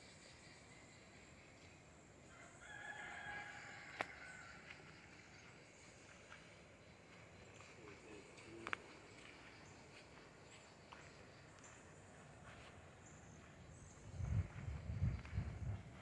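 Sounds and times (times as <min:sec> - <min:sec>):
faint rooster crowing: 0:02.2 - 0:05.8.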